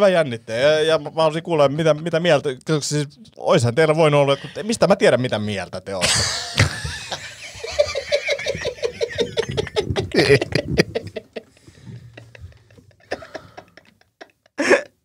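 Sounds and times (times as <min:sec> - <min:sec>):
person laughing: 0:06.0 - 0:15.0.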